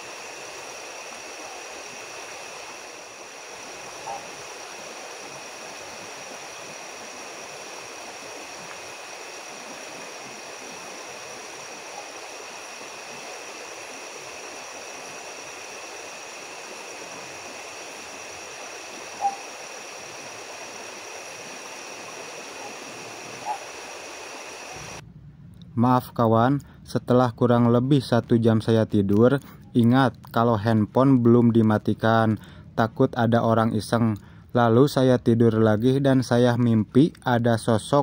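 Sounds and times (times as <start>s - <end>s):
river rushing: 0.0s - 25.0s.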